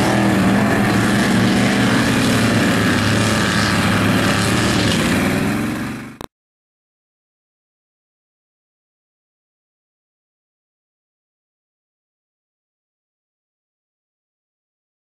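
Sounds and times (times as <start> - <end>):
truck engine revving in mud: 0.0 - 6.3.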